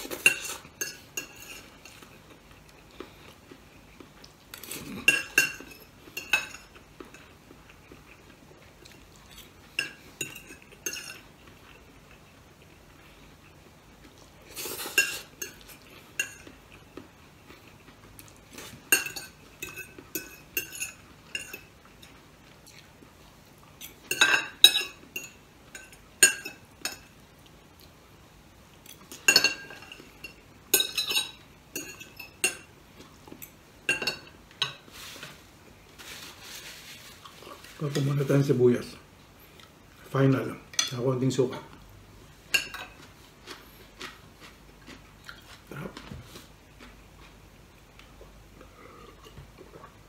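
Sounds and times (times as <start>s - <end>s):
cutlery clinking on a plate: 4.6s - 7.3s, 18.6s - 21.7s, 23.8s - 27.1s, 29.1s - 32.7s, 33.4s - 34.8s.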